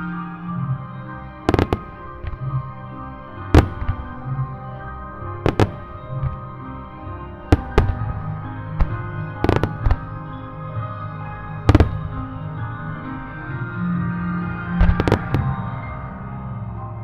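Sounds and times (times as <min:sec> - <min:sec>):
music with held tones: 0:00.0 - 0:17.0
fireworks bangs: 0:01.5 - 0:02.5, 0:03.5 - 0:04.2, 0:05.4 - 0:06.5, 0:07.5 - 0:10.2, 0:11.7 - 0:12.2, 0:14.8 - 0:15.6.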